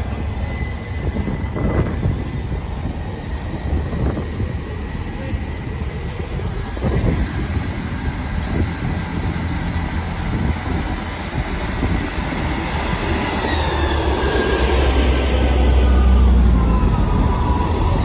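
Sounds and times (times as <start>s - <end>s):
diesel train engines running: 0.0s - 18.0s.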